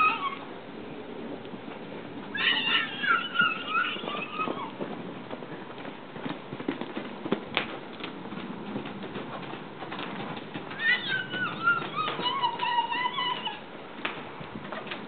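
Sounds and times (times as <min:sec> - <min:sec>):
high wavering animal call: 0:00.0 - 0:00.4, 0:02.4 - 0:04.7, 0:10.8 - 0:13.7
hoofbeats on dirt: 0:01.5 - 0:15.0.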